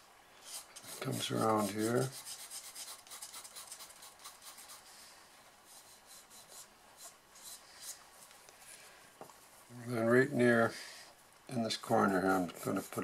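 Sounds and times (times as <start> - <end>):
pencil scratching on paper: 0.5 - 4.9, 5.6 - 8.0, 11.9 - 13.0.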